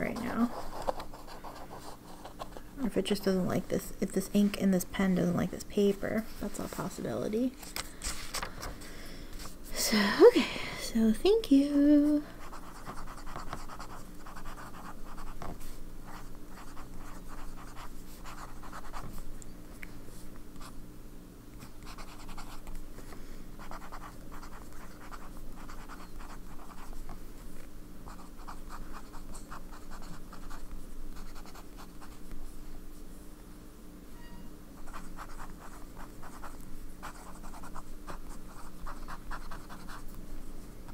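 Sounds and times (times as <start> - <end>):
fountain pen nib scratching paper: 12.4 - 15.5, 28.1 - 32.2, 34.8 - 40.1.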